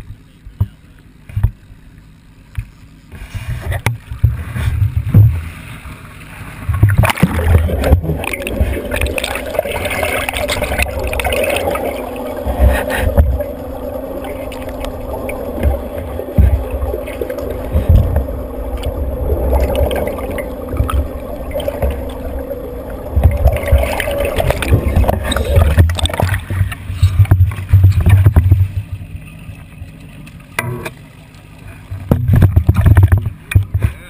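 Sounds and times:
muffled underwater sloshing: 0.0s - 34.0s
camera knocking underwater: 3.5s - 5.4s, 6.7s - 13.6s, 14.2s - 29.2s, 31.9s - 34.0s.

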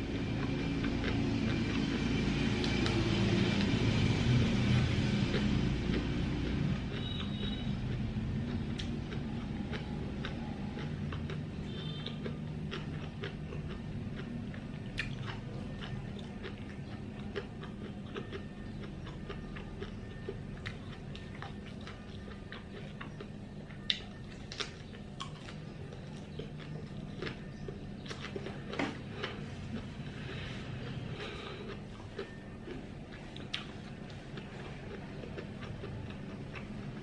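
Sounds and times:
wet chewing and mouth clicks: 0.1s - 37.0s.

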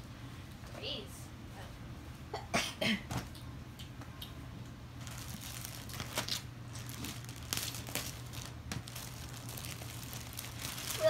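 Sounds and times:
plastic packaging crinkling: 5.0s - 11.0s.

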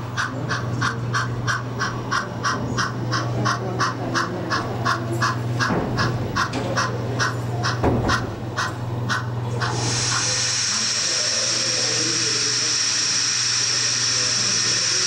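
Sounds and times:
model steam locomotive chuffing: 0.0s - 15.0s.

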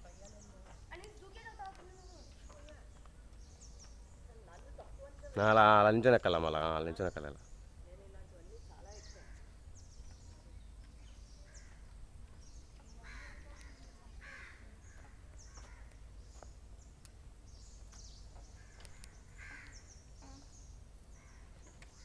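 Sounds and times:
small birds chirping: 0.0s - 22.0s
crows cawing: 13.0s - 16.0s, 18.6s - 19.9s, 21.2s - 21.6s.

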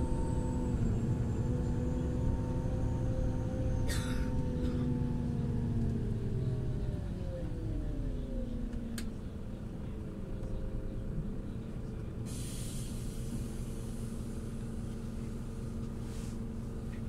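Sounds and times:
bus engine running: 0.0s - 17.0s
air hiss: 12.3s - 14.2s.

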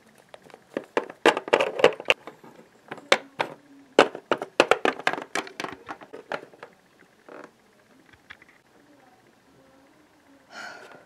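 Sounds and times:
plastic toy tapping on floor: 2.9s - 6.7s.

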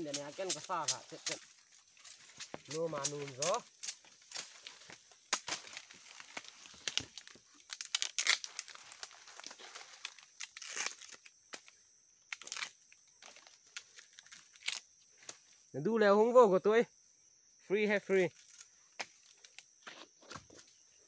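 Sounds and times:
dry leaves crackling: 0.0s - 11.3s
bamboo husk tearing: 2.2s - 11.7s, 12.3s - 14.8s.

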